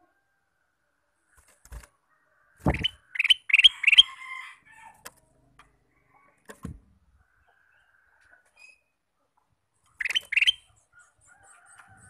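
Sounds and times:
dull thump: 2.6 - 3.0, 6.5 - 6.8
bird whistled song with trill: 10.0 - 11.6.

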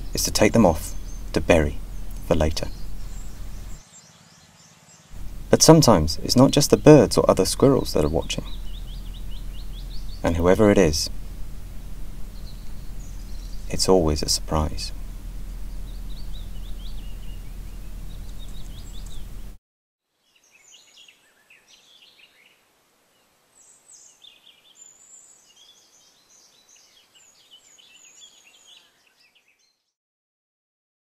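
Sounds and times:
loud noise with low hum: 0.0 - 3.8, 5.2 - 19.6
small birds chirping: 0.0 - 19.6, 20.2 - 29.9.

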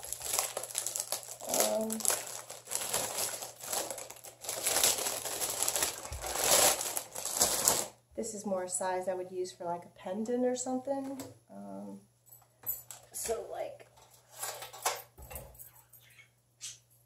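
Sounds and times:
plastic bags crinkling: 0.0 - 8.0.

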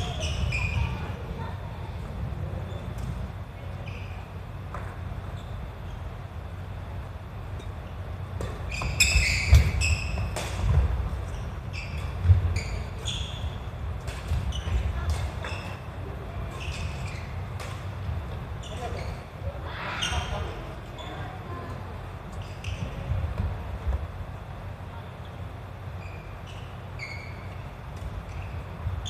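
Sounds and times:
rackets hitting shuttlecock: 8.3 - 11.1
shoes squeaking on wooden floor: 8.5 - 13.7, 18.6 - 19.4, 26.0 - 29.0.

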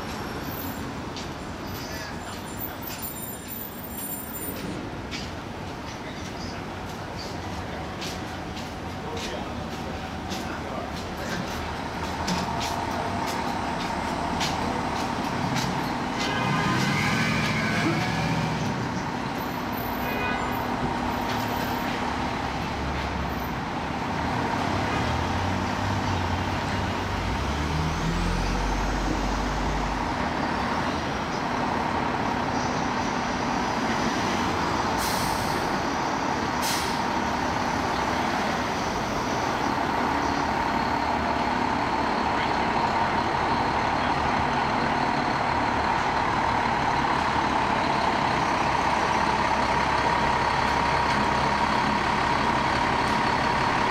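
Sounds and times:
street traffic: 0.0 - 53.9
diesel engine running: 20.9 - 53.9.

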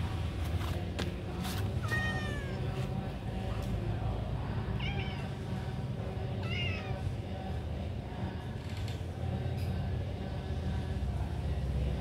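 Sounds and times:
cat meowing: 1.8 - 2.8, 4.8 - 5.4, 6.4 - 7.0.

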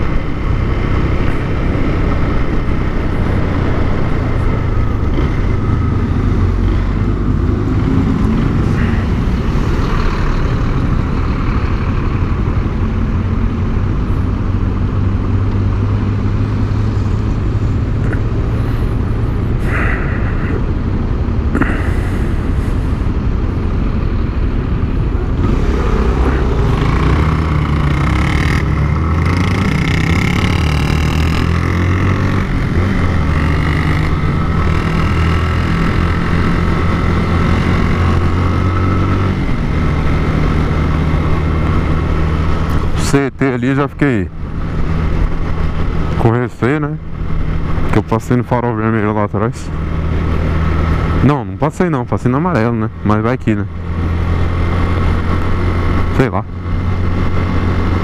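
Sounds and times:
motorcycle engine: 0.0 - 20.6, 21.5 - 43.0.

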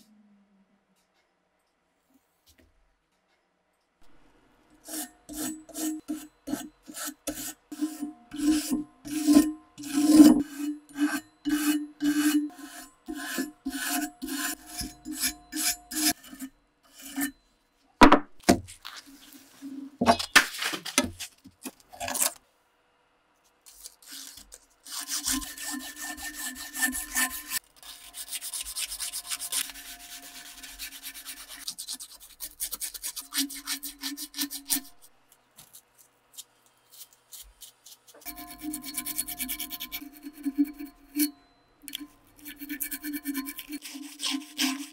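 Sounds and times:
sanding strokes on an axe head: 4.8 - 17.3, 24.9 - 35.1, 38.2 - 41.3, 42.4 - 44.9.

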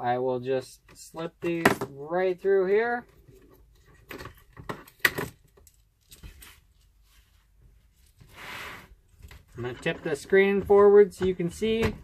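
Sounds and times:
wire and plastic clicks and rustles: 3.0 - 7.0.

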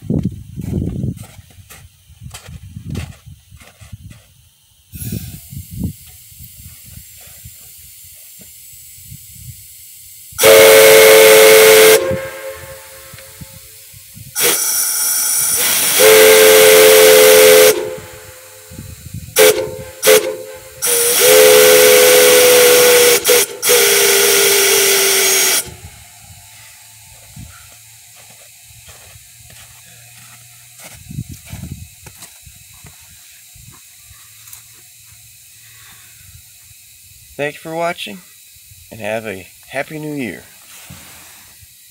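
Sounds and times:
air hissing from valves: 3.4 - 41.9
chime whistle blasts: 19.4 - 27.6.

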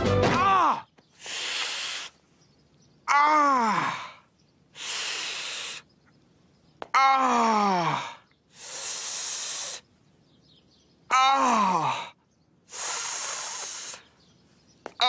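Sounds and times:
man sucking air through teeth: 1.2 - 2.1, 12.7 - 14.0
man groaning: 3.1 - 4.2, 7.0 - 8.2, 11.1 - 12.1.

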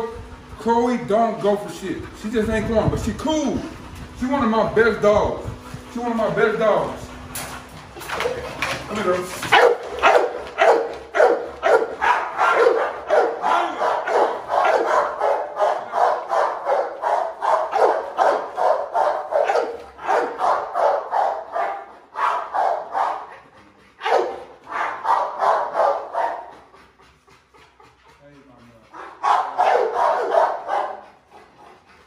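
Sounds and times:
dog barking rapidly: 9.4 - 23.4, 24.0 - 26.6, 29.0 - 31.1.

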